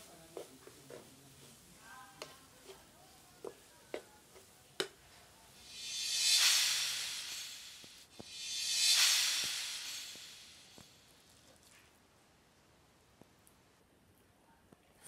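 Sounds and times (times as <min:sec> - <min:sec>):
food sizzling: 0:05.5 - 0:11.2.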